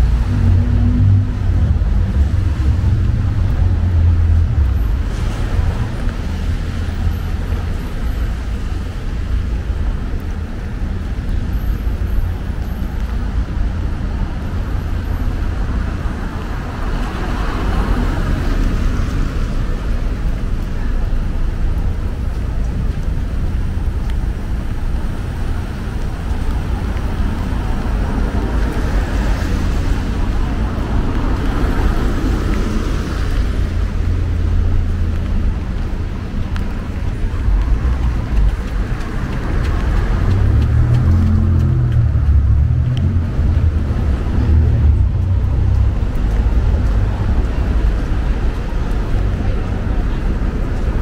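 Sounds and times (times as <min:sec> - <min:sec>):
traffic rumble on wet roads: 0:00.0 - 0:51.0
vehicle passing: 0:36.8 - 0:49.7.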